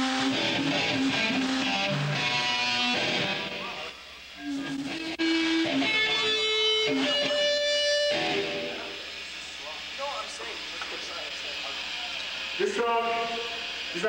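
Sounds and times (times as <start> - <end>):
electric guitar ringing notes: 0.0 - 9.2.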